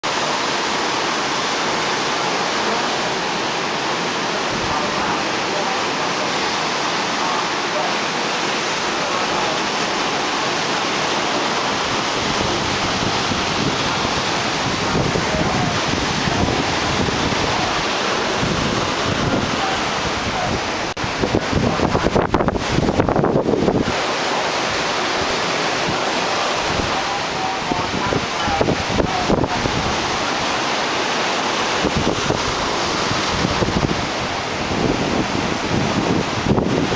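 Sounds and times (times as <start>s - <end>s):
surf breaking on a beach: 0.0s - 36.9s
wind buffeting microphone: 11.5s - 24.0s, 25.1s - 30.5s, 31.7s - 36.9s.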